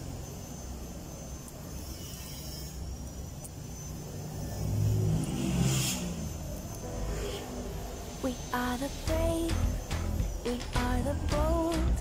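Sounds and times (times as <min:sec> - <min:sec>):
vehicle engine passing by: 0:04.6 - 0:08.2.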